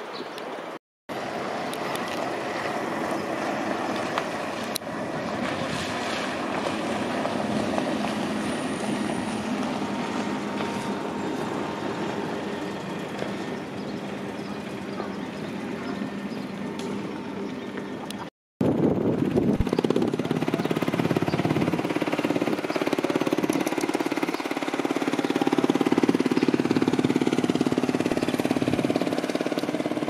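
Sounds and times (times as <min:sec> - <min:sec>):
boat engine humming: 0:00.4 - 0:30.0
water wash: 0:01.2 - 0:08.7
wind noise: 0:18.6 - 0:22.7.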